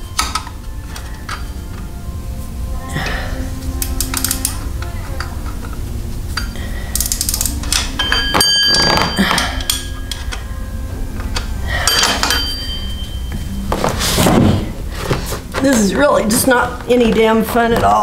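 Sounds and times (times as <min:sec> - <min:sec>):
sharp ringing clang: 0:07.8 - 0:10.3, 0:11.8 - 0:13.4
wrench clanking on metal: 0:11.2 - 0:13.1.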